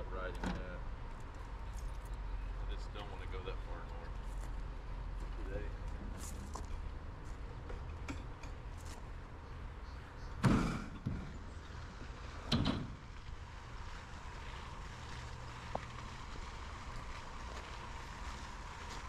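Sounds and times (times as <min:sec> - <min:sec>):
trailer ramp door banging: 0:10.4 - 0:11.5, 0:12.3 - 0:13.1.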